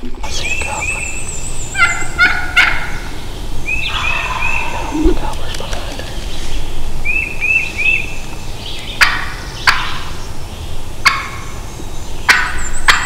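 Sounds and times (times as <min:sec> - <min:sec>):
turkey gobbling: 0:01.7 - 0:05.3, 0:09.0 - 0:10.1, 0:11.0 - 0:11.5, 0:12.3 - 0:13.0.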